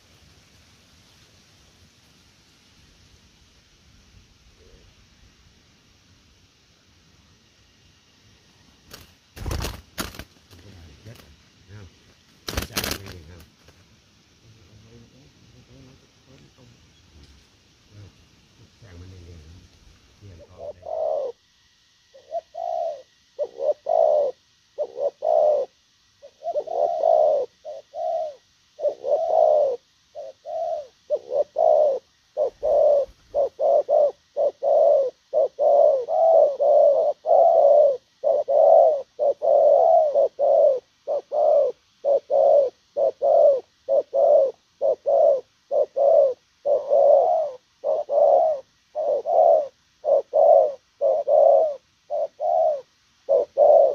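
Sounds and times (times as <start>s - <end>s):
dove cooing: 4.5s - 5.0s, 8.9s - 13.5s, 14.5s - 17.2s, 17.9s - 19.6s, 20.2s - 21.4s, 22.1s - 53.9s.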